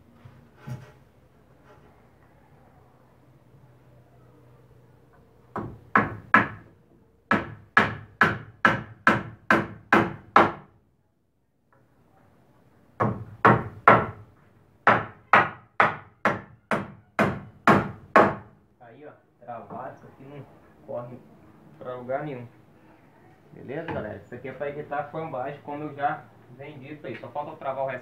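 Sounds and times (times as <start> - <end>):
hammer driving nails into wood: 7.3 - 10.7, 14.8 - 18.5.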